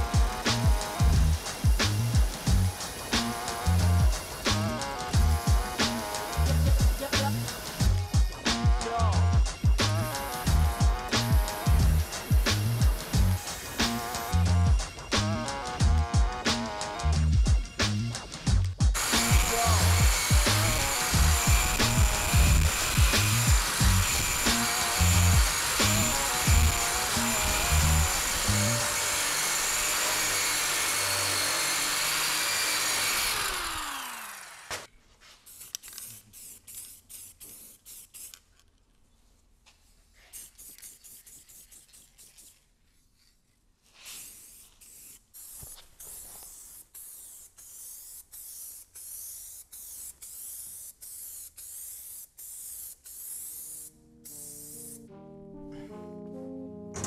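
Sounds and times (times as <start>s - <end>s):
aerosol spray can hissing: 0.0s - 8.7s, 9.6s - 15.8s, 19.0s - 30.2s, 35.5s - 38.5s, 40.2s - 42.6s, 44.0s - 55.0s
electric drum sander on steel: 0.0s - 17.2s, 19.0s - 34.9s.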